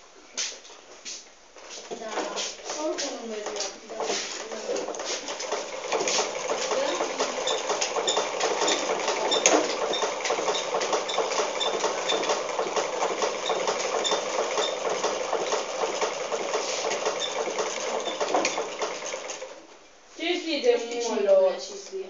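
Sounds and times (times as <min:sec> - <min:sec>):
sewing machine running: 0:03.4 - 0:19.6.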